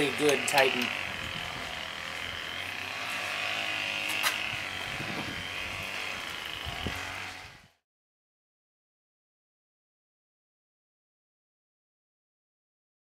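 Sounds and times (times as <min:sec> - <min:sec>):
distant string trimmer buzzing: 0:00.0 - 0:07.8.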